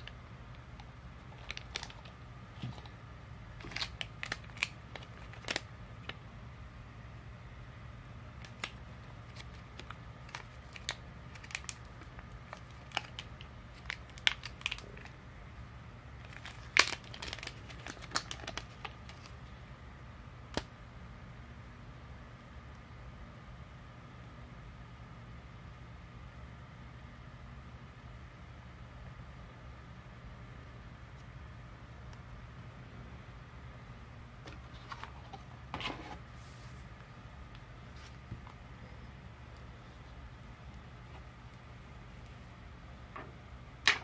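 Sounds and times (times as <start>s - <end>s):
plastic wrapping crinkling: 0.0s - 3.0s, 3.6s - 6.2s, 8.4s - 15.1s, 16.2s - 19.4s
low steady hum: 0.0s - 44.0s.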